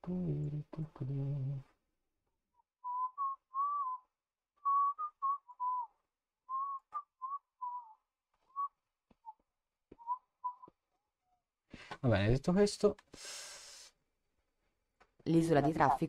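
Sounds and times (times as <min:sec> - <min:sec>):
man whistling a tune: 0:02.8 - 0:05.9, 0:06.5 - 0:08.7, 0:10.0 - 0:10.7.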